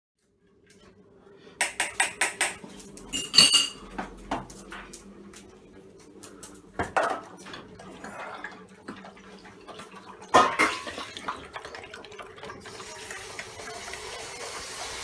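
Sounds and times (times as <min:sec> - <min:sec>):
metal bowl clacking: 0:01.6 - 0:03.8
metal bowl clinks: 0:03.1 - 0:03.8
metal bowl ringing: 0:03.1 - 0:03.8.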